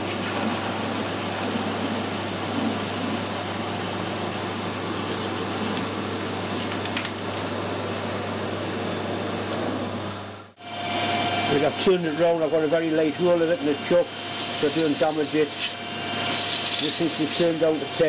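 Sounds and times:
lathe cutting metal: 0:10.9 - 0:18.0.

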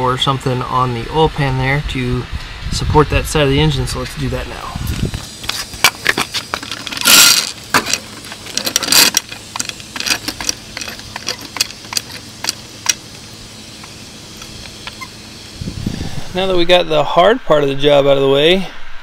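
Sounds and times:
floor jack clanking and clicking: 0:05.5 - 0:13.0.

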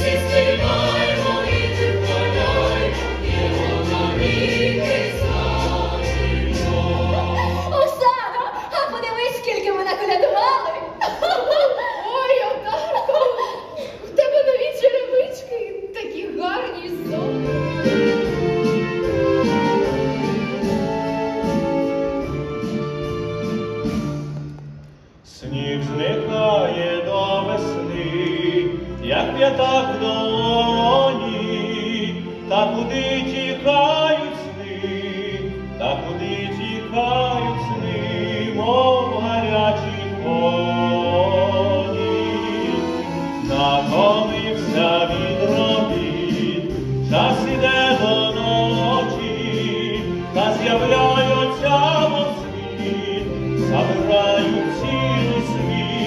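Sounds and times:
instrumental accompaniment: 0:00.0 - 0:07.8, 0:16.9 - 0:56.0
man singing: 0:25.4 - 0:56.0.

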